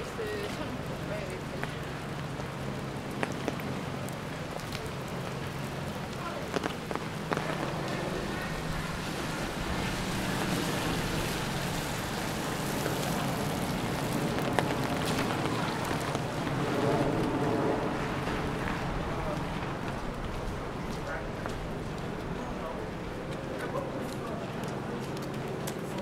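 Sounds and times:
steady rain: 0.0s - 26.0s.

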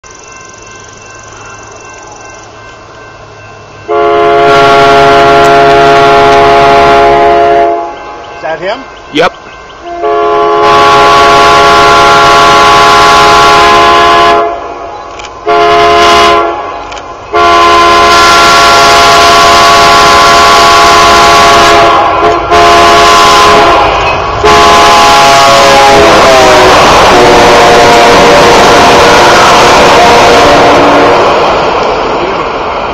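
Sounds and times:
train engine and wheel noise: 0.0s - 32.9s
locomotive air horn blasts: 3.9s - 8.0s, 9.8s - 14.7s, 15.4s - 16.7s, 17.3s - 31.4s.

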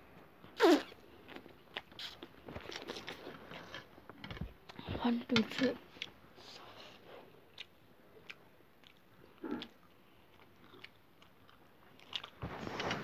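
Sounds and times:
chewing noodles: 7.4s - 12.4s.

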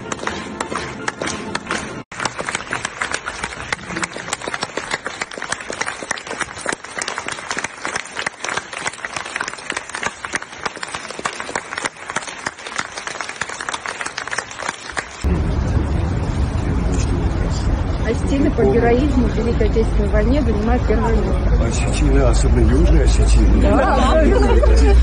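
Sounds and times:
audience applauding: 0.0s - 15.3s
sharp nearby claps: 0.0s - 15.3s.

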